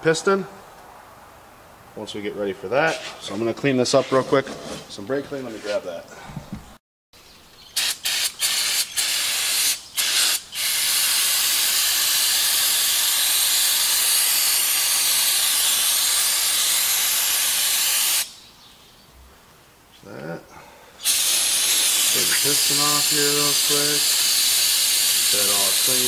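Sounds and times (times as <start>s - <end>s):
aerosol can spraying: 7.8s - 18.3s, 21.0s - 26.0s.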